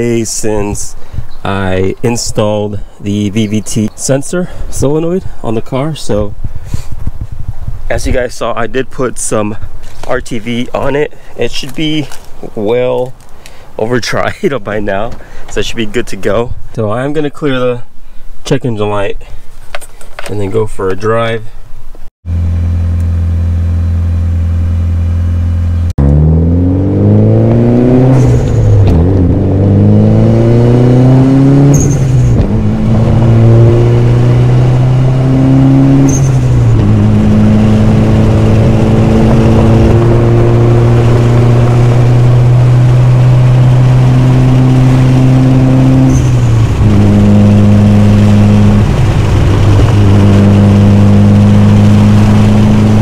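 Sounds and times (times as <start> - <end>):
car engine accelerating through gears: 22.3 - 53.0.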